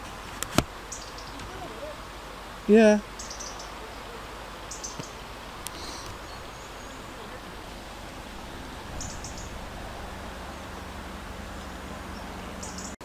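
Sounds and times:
outdoor background noise: 0.0 - 13.0
small birds chirping: 0.8 - 13.0
faint clicks: 4.9 - 6.2.

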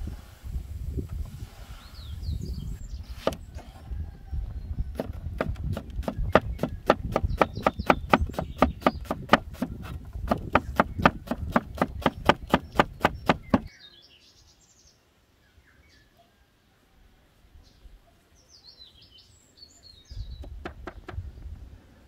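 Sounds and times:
cleaver chopping on wooden board: 3.2 - 3.4, 4.9 - 13.7.

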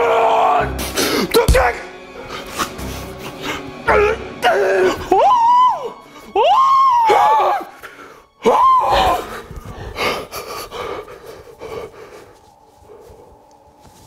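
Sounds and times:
man screaming in fright: 3.9 - 7.8, 8.4 - 9.3.

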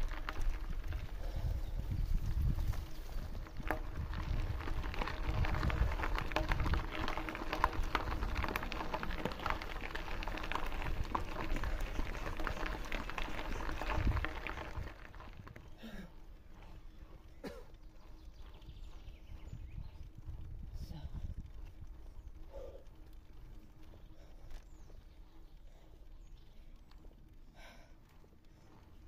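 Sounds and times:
wind rumble on microphone: 0.0 - 15.8, 18.2 - 25.2
bike tyres rolling on gravel: 0.0 - 29.0.

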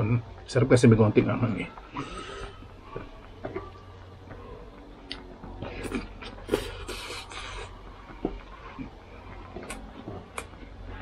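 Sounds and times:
man chewing: 5.0 - 11.0
man slurping: 5.1 - 7.8.

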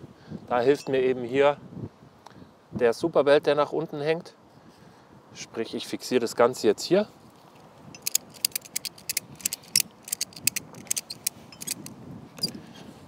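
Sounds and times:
ratchet strap clicking: 8.0 - 12.6.

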